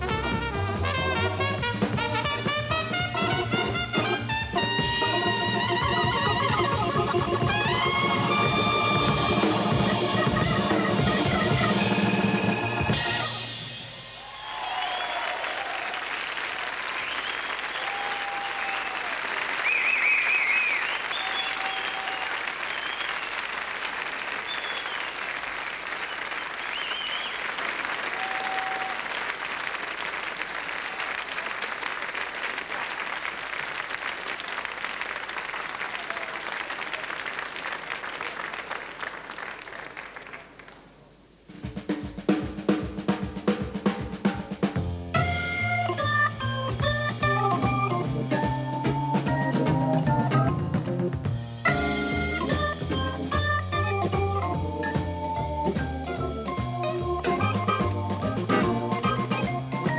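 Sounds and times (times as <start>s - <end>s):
jazz band with drums and organ: 0.0s - 14.5s, 41.5s - 59.9s
whistles from audience: 14.0s - 15.7s, 16.9s - 23.4s, 24.4s - 25.3s, 25.9s - 29.1s
audience applauding: 14.0s - 41.1s.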